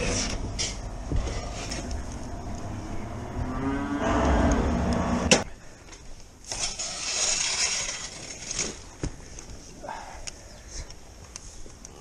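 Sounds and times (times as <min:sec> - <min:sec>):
cow mooing: 0:03.4 - 0:04.4.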